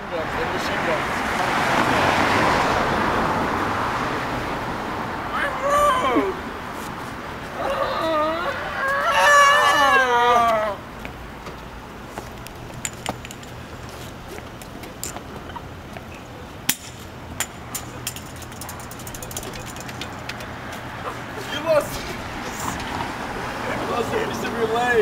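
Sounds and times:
street hum: 0.0s - 25.0s
man yelling: 5.3s - 6.4s, 7.6s - 10.8s, 21.4s - 22.8s
crutches clacking on pavement: 10.4s - 23.1s.

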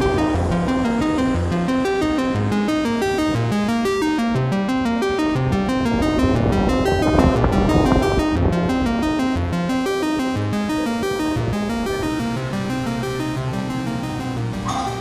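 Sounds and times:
low held note: 0.0s - 9.8s
background music of quick notes: 0.0s - 15.0s.

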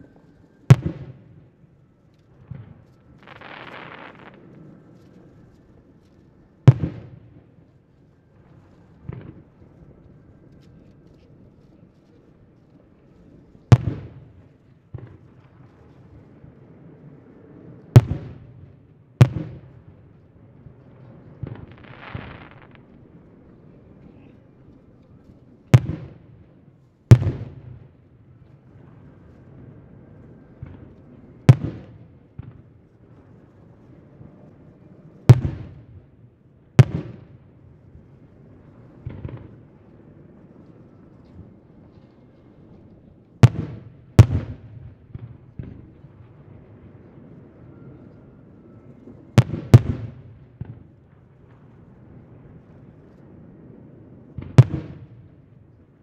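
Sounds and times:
crackling firework pops: 0.7s - 1.4s, 2.1s - 7.4s, 8.5s - 16.3s, 17.9s - 26.3s, 27.1s - 27.8s, 35.3s - 35.9s, 36.8s - 37.4s, 38.9s - 39.7s, 40.6s - 46.7s, 49.4s - 51.8s, 54.3s - 55.4s
firework booms with echo: 0.7s - 1.4s, 6.7s - 7.2s, 13.7s - 15.2s, 18.0s - 20.1s, 25.7s - 26.2s, 27.1s - 27.8s, 31.5s - 32.6s, 35.3s - 36.0s, 36.8s - 37.4s, 43.4s - 46.3s, 49.4s - 50.8s, 54.4s - 55.3s.

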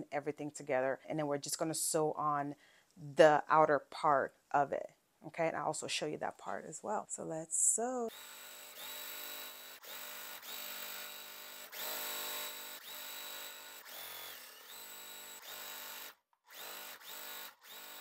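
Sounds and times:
sewing machine stitching: 8.1s - 18.0s.

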